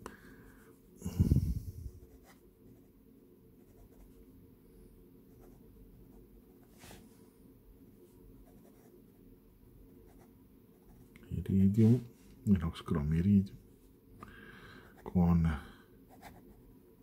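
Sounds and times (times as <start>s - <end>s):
pen nib scratching paper: 16.1s - 16.5s.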